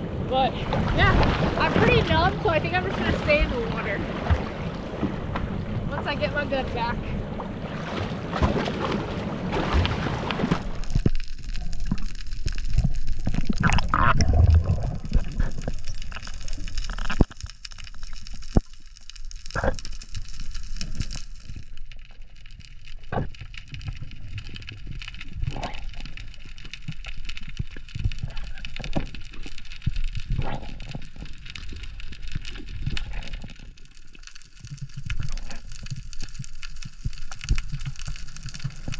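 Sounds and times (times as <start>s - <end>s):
water splashing beside boat: 0.0s - 22.4s
underwater clicks and crackles: 0.7s - 38.9s.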